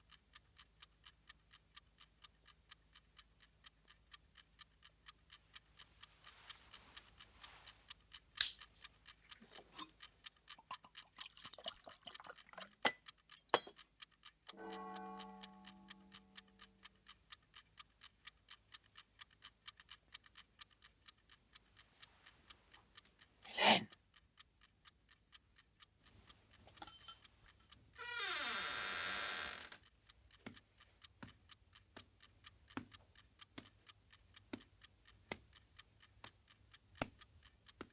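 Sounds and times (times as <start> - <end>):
alarm clock ticking: 0.0 - 37.9
sharp clicks: 13.0 - 37.9
low held tone: 14.6 - 16.6.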